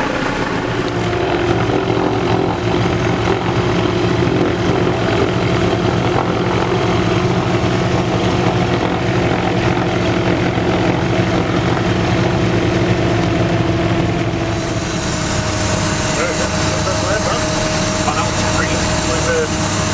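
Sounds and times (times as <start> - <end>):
propeller plane engines running: 0.0 - 19.9.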